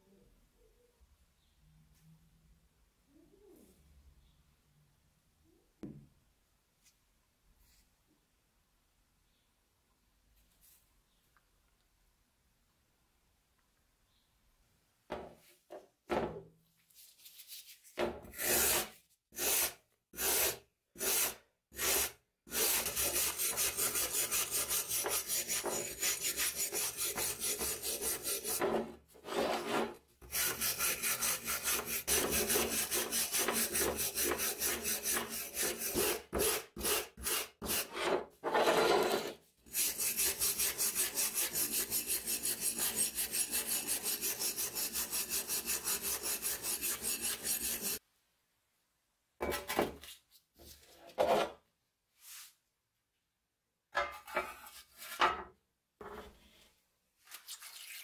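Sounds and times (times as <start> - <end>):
wire brush scraping rusty steel: 39.7 - 48.0.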